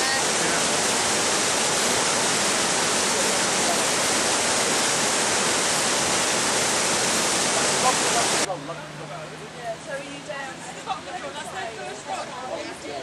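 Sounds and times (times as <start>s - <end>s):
river rapids roaring: 0.0s - 8.5s.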